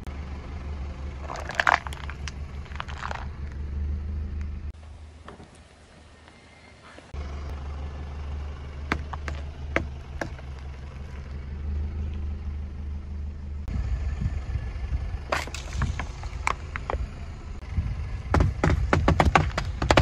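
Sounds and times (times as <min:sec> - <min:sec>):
car engine rumble: 0:00.0 - 0:20.0
plastic container crushed under tyre: 0:01.2 - 0:03.4, 0:15.3 - 0:17.0.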